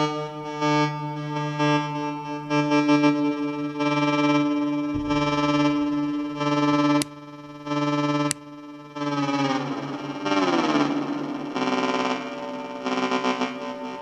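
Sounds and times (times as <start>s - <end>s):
distorted pulsing drone: 5.0s - 7.7s.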